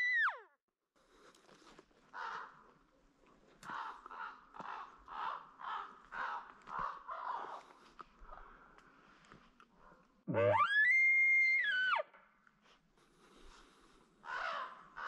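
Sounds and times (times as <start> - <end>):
harsh caw-like animal calls: 2.1 - 2.6, 3.6 - 7.6, 14.2 - 15.0.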